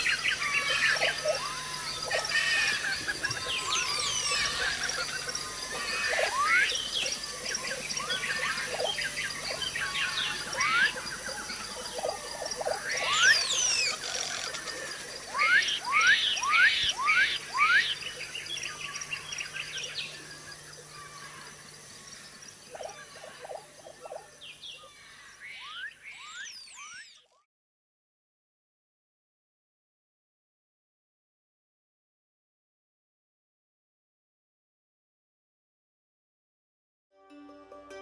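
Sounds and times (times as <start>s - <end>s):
birds calling and chirping: 0.0s - 27.4s.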